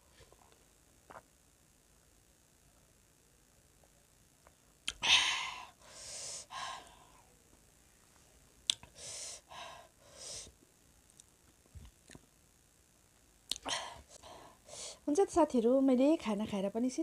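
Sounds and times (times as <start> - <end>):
sharp mouth click: 4.8 - 5.0, 8.7 - 8.9.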